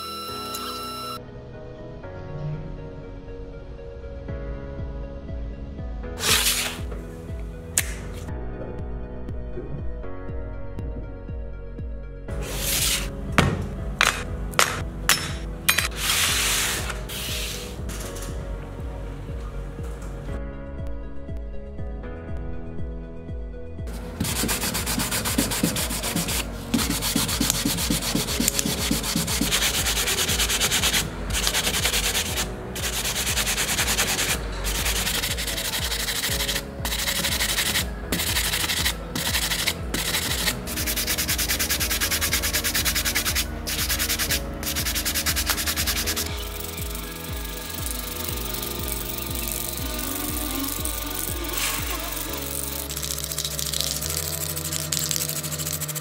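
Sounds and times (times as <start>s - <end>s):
background music: 0.0s - 56.0s
sanding sponge rubbing: 6.2s - 6.9s, 16.0s - 17.8s, 23.9s - 56.0s.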